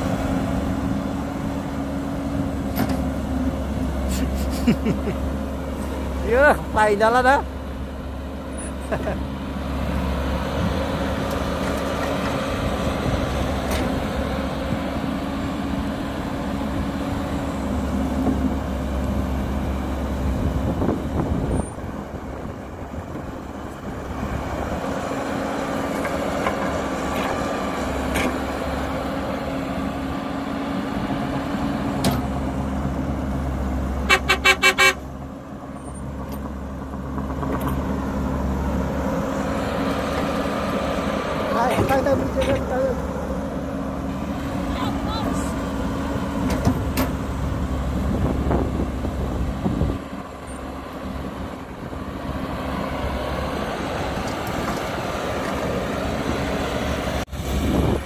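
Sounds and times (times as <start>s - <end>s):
excavator diesel engine running: 0.0s - 58.0s
vehicle horn short toots: 34.1s - 35.0s.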